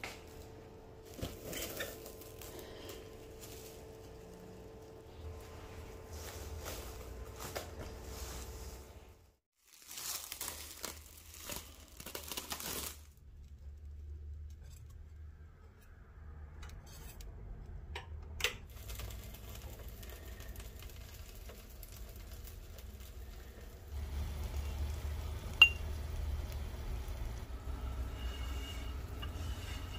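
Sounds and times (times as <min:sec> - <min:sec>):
plastic cling wrap crinkling: 0:01.0 - 0:08.9, 0:09.5 - 0:13.7, 0:18.7 - 0:27.4.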